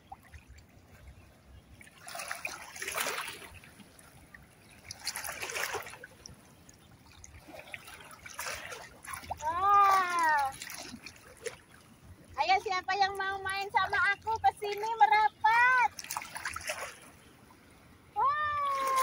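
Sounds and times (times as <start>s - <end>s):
feet splashing in shallow water: 0.0s - 19.0s
person calling out: 18.2s - 19.0s.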